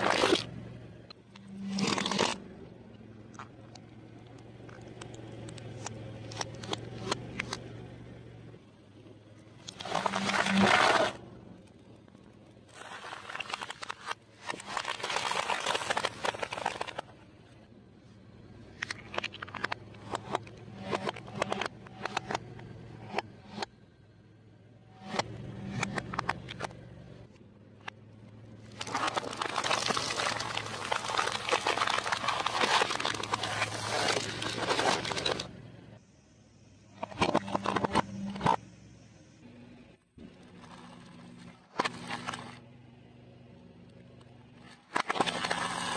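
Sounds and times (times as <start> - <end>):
car tyre crunching object: 0.0 - 2.6, 9.6 - 17.4, 27.8 - 35.6
low engine hum: 0.0 - 45.9
plastic capsules cracking: 12.8 - 17.0, 28.7 - 35.5.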